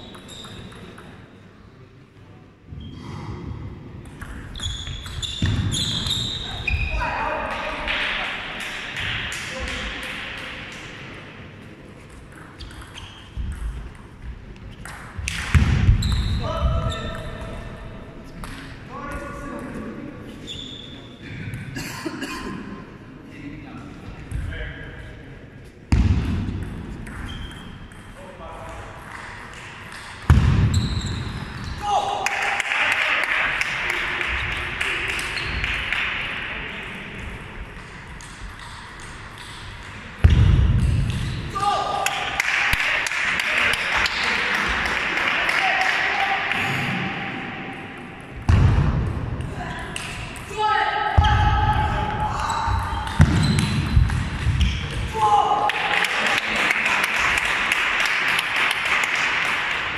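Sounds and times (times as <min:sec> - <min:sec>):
table tennis balls bouncing: 0:00.0 - 0:01.4, 0:04.0 - 0:06.9, 0:07.5 - 0:11.0, 0:11.9 - 0:16.4, 0:25.9 - 0:31.8, 0:37.2 - 0:41.5, 0:52.4 - 0:55.1.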